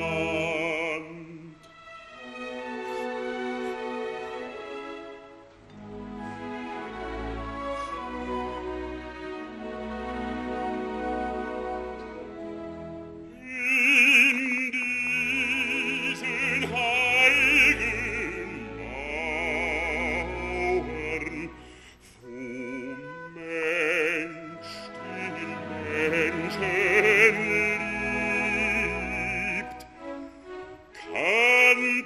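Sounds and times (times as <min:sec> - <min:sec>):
man singing opera: 0:00.0 - 0:01.7, 0:13.3 - 0:30.1, 0:30.9 - 0:32.0
orchestral accompaniment: 0:00.0 - 0:32.0.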